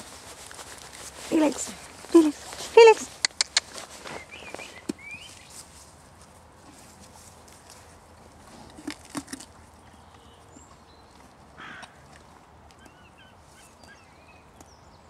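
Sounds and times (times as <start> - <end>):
small birds chirping: 1.3 - 5.7, 9.8 - 11.4, 12.8 - 15.0
sharp clicks: 3.2 - 3.8.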